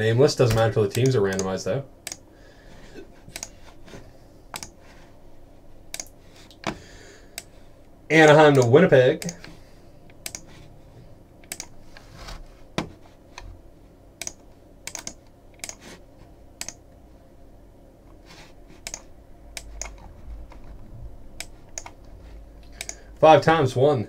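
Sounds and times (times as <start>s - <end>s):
faint low room hum: 0.0s - 24.0s
keyboard and mouse clicks: 0.4s - 1.5s, 3.3s - 3.6s, 4.6s - 4.8s, 5.9s - 6.7s, 10.1s - 10.5s, 11.4s - 11.8s, 14.2s - 15.8s, 16.6s - 16.8s, 18.8s - 20.8s, 21.4s - 23.0s.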